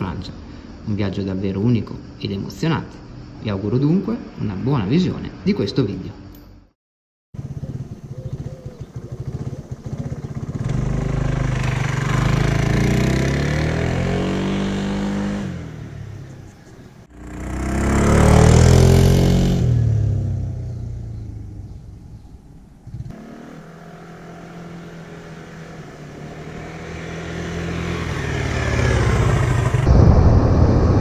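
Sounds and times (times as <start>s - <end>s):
scooter engine: 7.4s - 15.6s, 17.1s - 21.8s, 22.9s - 29.9s.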